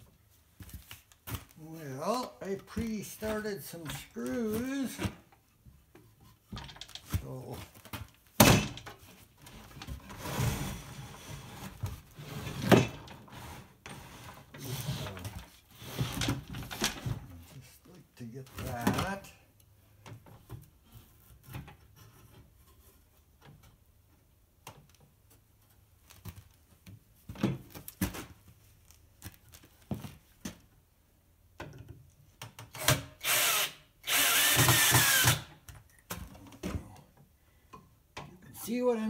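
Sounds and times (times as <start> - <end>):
cordless drill driving screws: 32.8 - 35.5.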